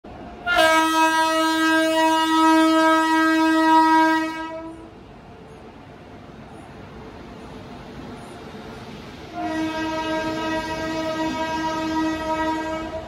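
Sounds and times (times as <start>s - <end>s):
train horn long blast: 0.4s - 4.9s, 9.3s - 13.0s.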